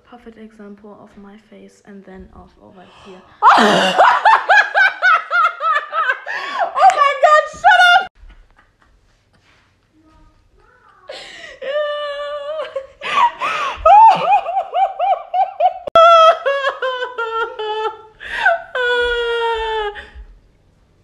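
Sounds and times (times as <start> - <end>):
woman laughing in squeals: 3.4 - 8.1, 11.1 - 20.2.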